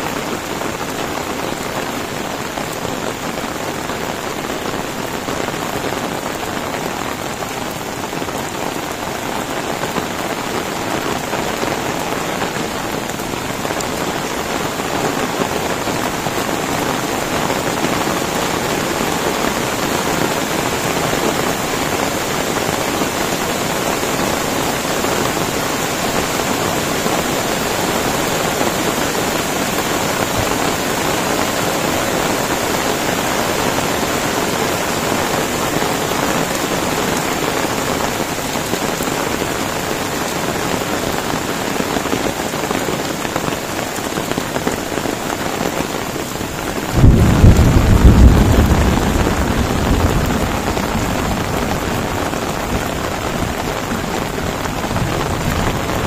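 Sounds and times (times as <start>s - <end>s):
heavy rain hissing: 0.0s - 56.0s
river rushing over rapids: 0.0s - 56.0s.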